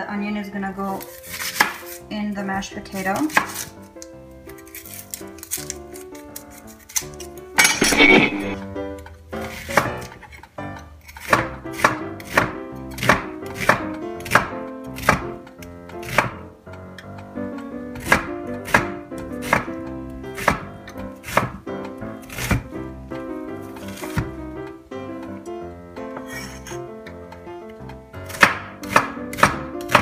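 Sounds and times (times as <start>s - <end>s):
knife chopping on wooden board: 1.4s - 1.9s, 3.3s - 3.7s, 9.4s - 10.2s, 11.1s - 16.5s, 18.0s - 22.7s, 23.8s - 24.4s, 28.2s - 30.0s.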